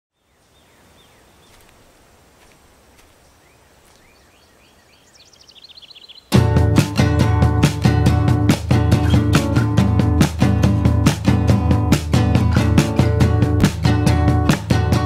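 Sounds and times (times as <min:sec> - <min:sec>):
birds chirping: 0:00.1 - 0:10.2
open field ambience: 0:00.1 - 0:15.0
guitar music: 0:06.3 - 0:15.0.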